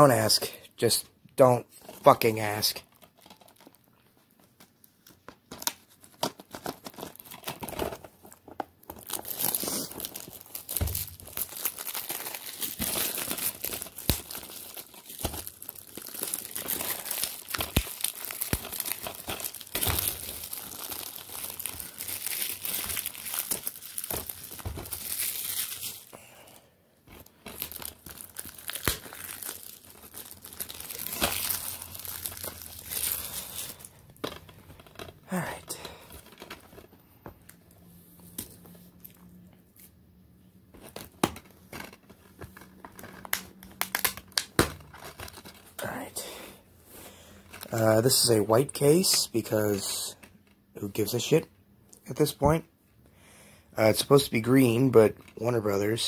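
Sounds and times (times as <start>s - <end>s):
plastic wrap crinkling: 1.8s - 26.2s, 27.1s - 37.6s, 40.7s - 46.0s.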